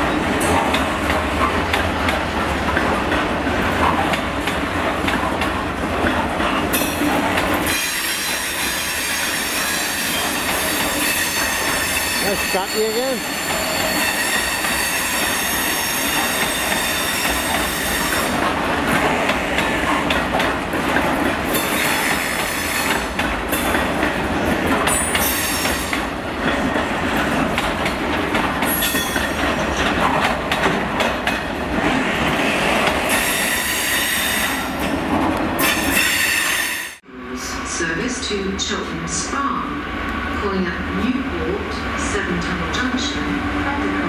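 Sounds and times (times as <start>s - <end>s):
train wheels clattering over rail joints: 0.1s - 12.2s, 13.4s - 36.3s
high-pitched wheel squeal: 7.7s - 18.0s.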